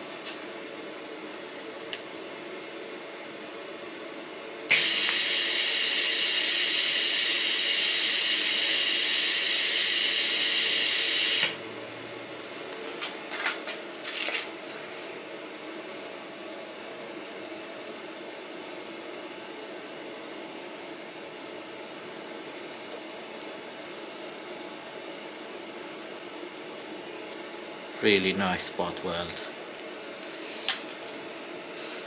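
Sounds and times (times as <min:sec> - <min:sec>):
welding arc hiss: 0:04.7 - 0:11.6.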